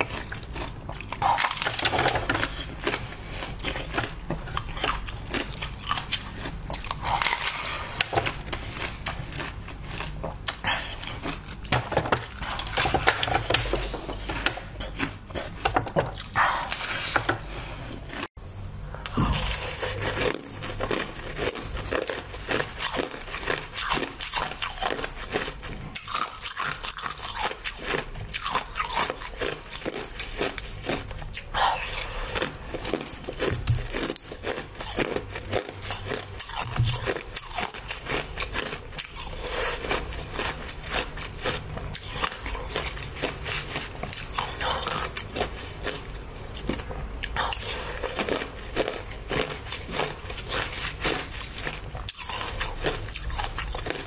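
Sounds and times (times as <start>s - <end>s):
chewing crushed ice: 0.0s - 18.3s, 19.0s - 54.0s
wooden spoon scraping ice: 1.3s - 18.3s.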